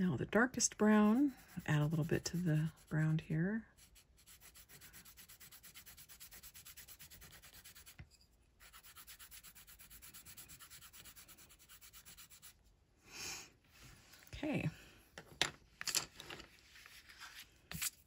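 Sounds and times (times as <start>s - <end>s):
pencil scratching on paper: 0.7s - 8.0s, 8.6s - 12.6s.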